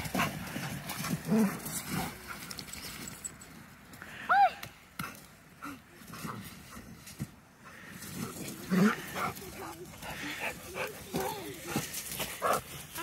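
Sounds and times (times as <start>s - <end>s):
paws crunching in snow: 6.0s - 13.0s.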